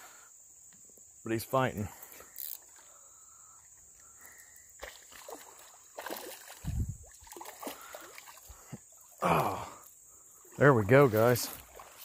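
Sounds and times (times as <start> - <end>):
fish splashing in water: 4.8 - 9.2, 11.6 - 12.0.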